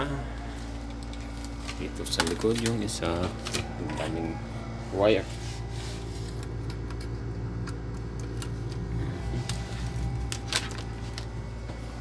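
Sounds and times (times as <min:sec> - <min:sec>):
window air conditioner humming: 0:00.0 - 0:12.0
cables clicking and rustling: 0:00.5 - 0:04.3, 0:06.1 - 0:11.9.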